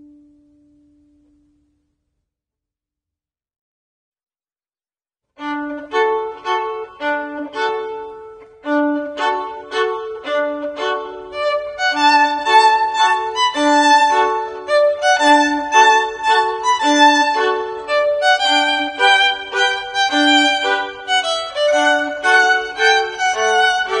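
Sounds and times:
instrumental background music: 5.4 - 24.0.

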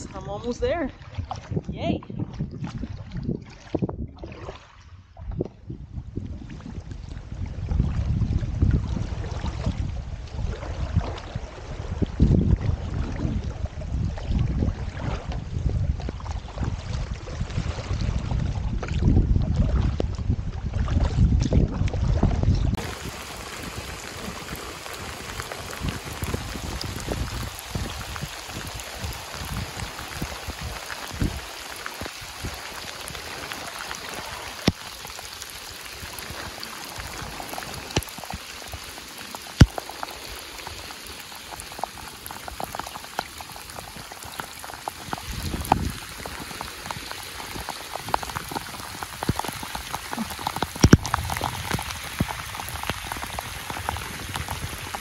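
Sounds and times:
rain on river surface: 0.0 - 0.9, 22.7 - 55.0
close raindrop ticks: 22.7 - 55.0.

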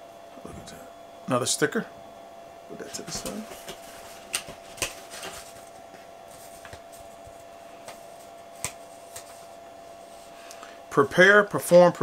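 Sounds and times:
paper and cardboard rustling: 3.0 - 9.5.

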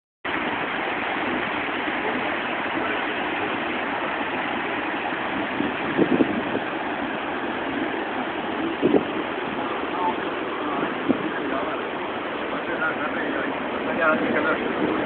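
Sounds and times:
water rushing over stones: 0.2 - 15.0.

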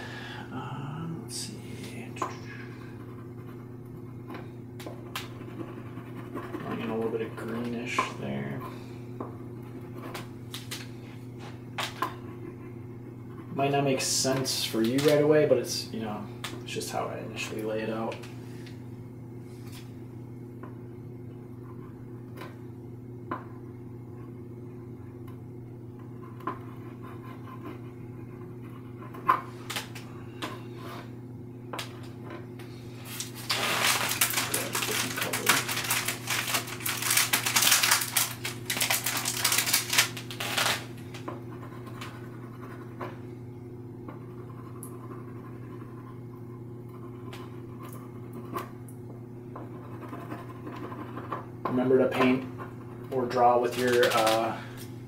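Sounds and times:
steady low hum: 0.0 - 55.0
oil pastel scratching on panel: 5.2 - 7.6, 26.2 - 29.6, 49.6 - 51.4.

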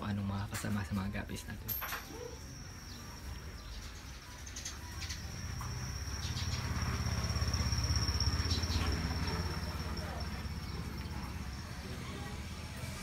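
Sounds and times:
low engine rumble: 3.2 - 13.0
insect high-pitched call: 4.8 - 10.2.

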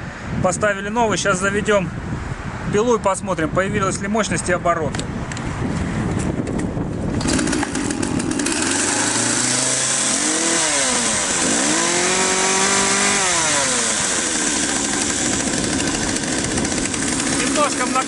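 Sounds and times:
chainsaw engine revving and idling: 7.1 - 18.0.

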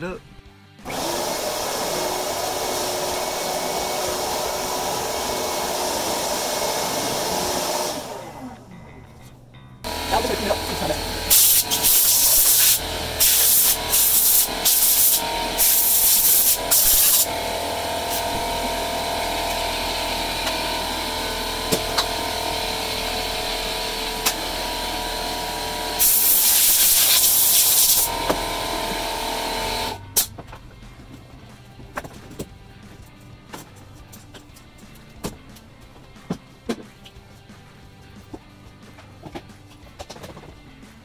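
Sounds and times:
shop vac motor whine: 0.8 - 30.6
sawdust rushing up hose: 0.9 - 8.2, 9.9 - 30.0.

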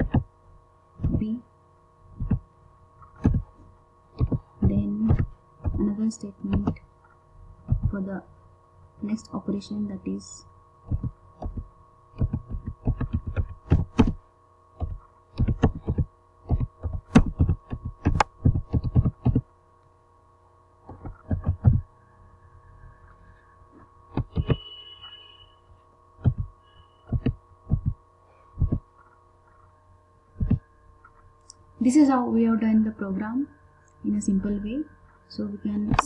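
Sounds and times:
steady electrical hum: 0.0 - 36.0
keyboard typing: 4.2 - 6.8, 12.2 - 14.2, 14.8 - 19.4, 20.9 - 21.8, 24.1 - 24.6, 26.2 - 26.5.

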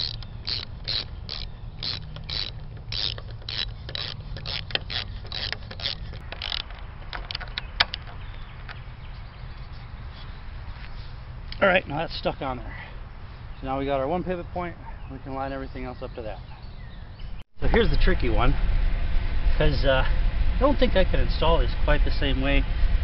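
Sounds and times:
ratchet wrench ratcheting: 0.0 - 8.1
sharp wrench clicks: 0.0 - 8.2.

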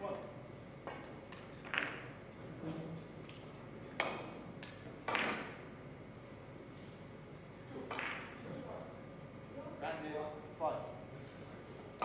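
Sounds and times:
billiard balls knocking together: 0.8 - 2.2, 3.2 - 5.7, 7.8 - 8.5
cue tip striking ball: 0.8 - 2.2, 3.9 - 5.7, 7.8 - 8.4.

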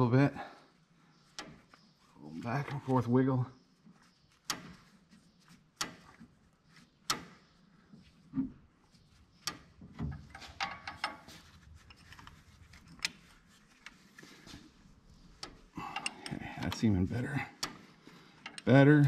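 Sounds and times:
wrench clicking and knocking on bolt: 9.4 - 11.3.

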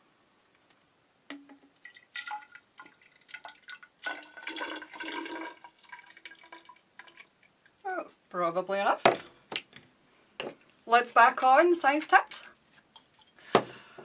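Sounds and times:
liquid dribbling into cylinder: 1.3 - 7.8.

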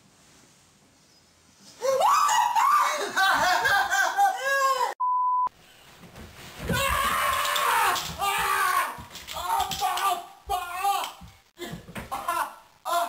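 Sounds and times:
person screaming: 1.8 - 5.0, 6.7 - 11.2, 12.3 - 13.0
test-tone beep: 5.0 - 5.5
person yelling: 6.7 - 11.2.

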